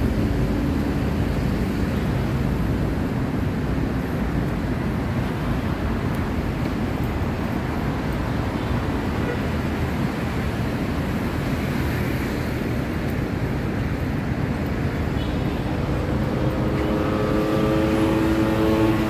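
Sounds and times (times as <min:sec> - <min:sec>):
city traffic noise: 0:00.0 - 0:19.0
vehicle passing: 0:15.7 - 0:19.0.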